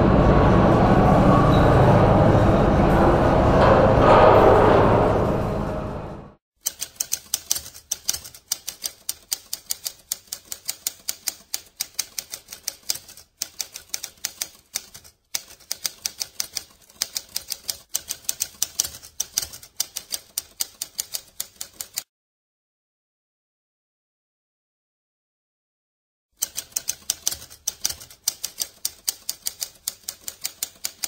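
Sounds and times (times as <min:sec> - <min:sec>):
typewriter keys clacking: 0:06.6 - 0:22.1, 0:26.4 - 0:31.0.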